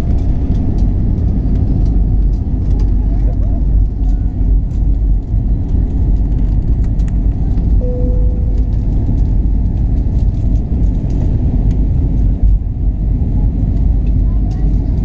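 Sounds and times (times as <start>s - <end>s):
jet engine cabin rumble: 0.0s - 15.0s
short single tone: 7.8s - 9.4s.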